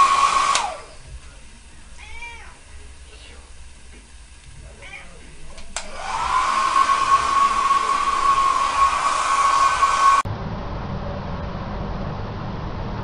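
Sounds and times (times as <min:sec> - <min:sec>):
hair dryer motor whine: 0:00.0 - 0:01.3, 0:05.5 - 0:10.3
rush of blown air: 0:05.9 - 0:10.3.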